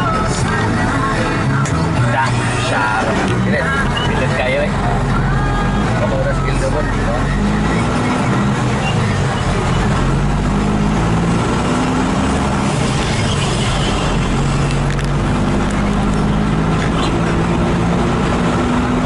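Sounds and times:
vehicle engine and road noise: 0:00.0 - 0:19.0.

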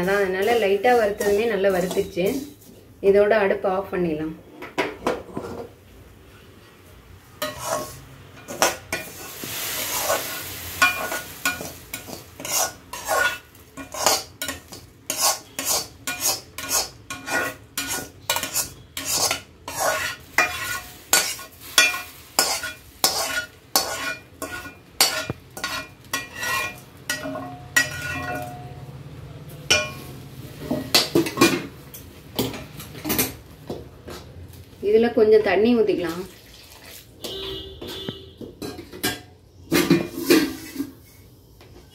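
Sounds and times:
metal spatula scraping a pan: 0:00.0 - 0:02.8, 0:07.4 - 0:28.7, 0:37.2 - 0:41.3.

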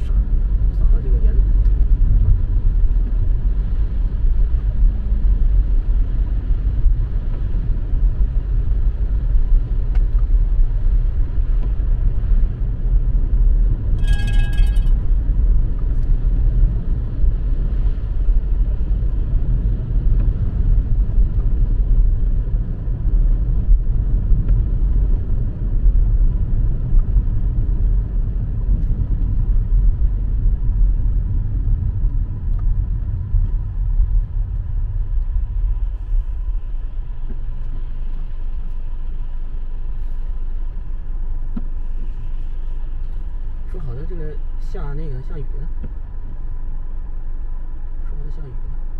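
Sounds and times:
car rumble inside cabin: 0:00.0 - 0:48.9
short electronic chime: 0:14.0 - 0:14.9.

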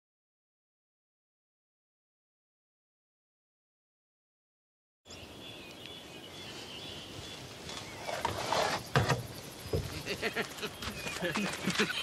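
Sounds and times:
small birds chirping: 0:05.1 - 0:12.0.

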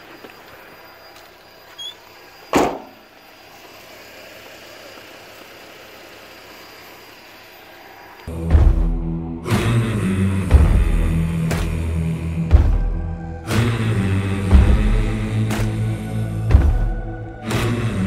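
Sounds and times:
faint outdoor background: 0:00.0 - 0:18.0
brief thump: 0:02.6 - 0:03.0.

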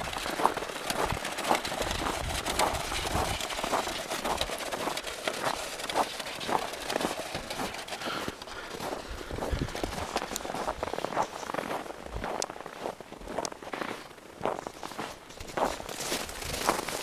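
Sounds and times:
footsteps crunching on snow: 0:00.0 - 0:17.0.

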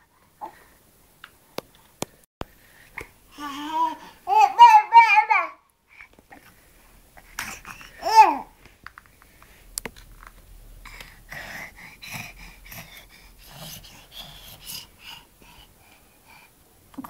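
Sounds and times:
baby huffing and gasping: 0:07.2 - 0:08.6.

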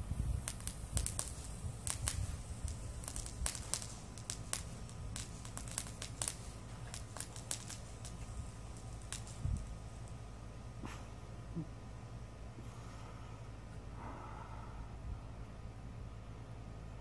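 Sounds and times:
sparkler crackling and popping: 0:00.0 - 0:10.4
low steady rumble: 0:00.0 - 0:17.0.

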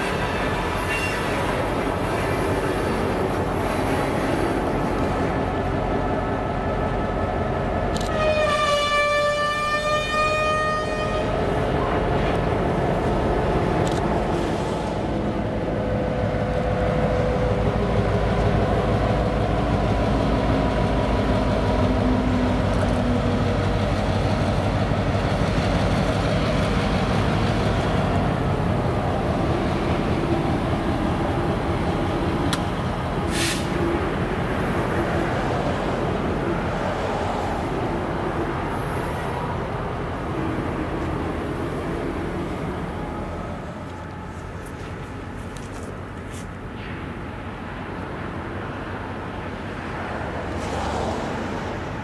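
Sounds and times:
diesel locomotive engine rumbling: 0:00.0 - 0:52.0
rail car wheel noise: 0:00.0 - 0:52.0
brief high hiss: 0:33.3 - 0:33.8.

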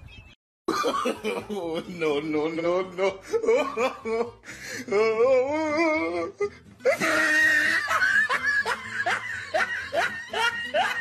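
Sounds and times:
people laughing: 0:00.7 - 0:04.4, 0:06.8 - 0:11.0
music: 0:01.2 - 0:11.0.

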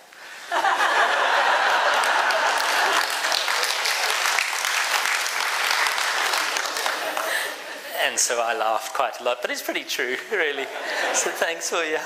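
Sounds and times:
crowd laughing: 0:00.3 - 0:04.4, 0:06.1 - 0:07.9, 0:10.6 - 0:11.8
crowd applauding: 0:01.2 - 0:07.6.

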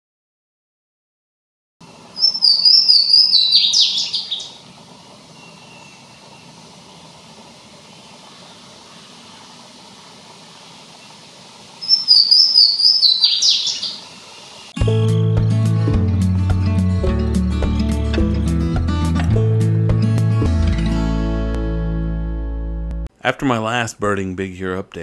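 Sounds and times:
faint outdoor hiss: 0:01.8 - 0:14.8, 0:23.1 - 0:25.0
bird singing: 0:01.9 - 0:06.7, 0:11.8 - 0:14.1.

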